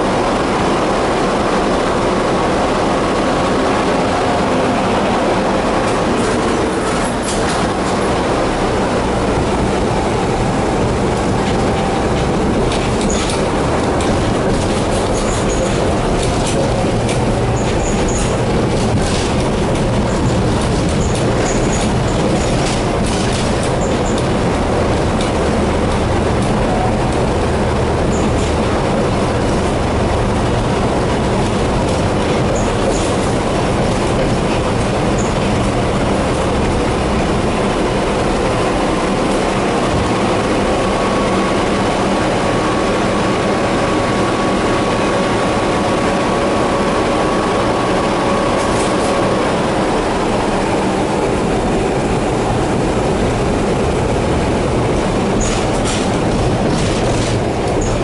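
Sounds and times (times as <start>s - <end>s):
steady whine: 0.0s - 58.0s
tram wheels rumbling: 0.0s - 58.0s.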